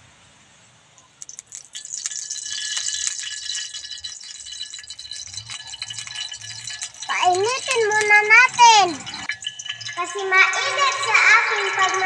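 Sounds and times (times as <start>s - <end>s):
oil crackling in hot wok: 1.1s - 12.0s.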